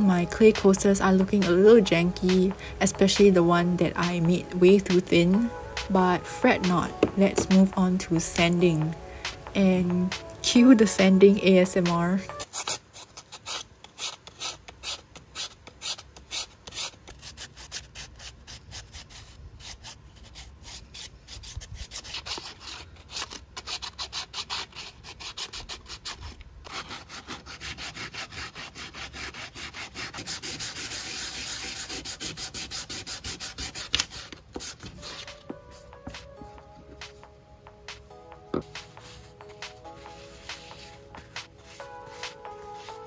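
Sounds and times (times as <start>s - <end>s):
sandpaper rubbing on clay: 12.3s - 35.4s, 38.8s - 43.0s.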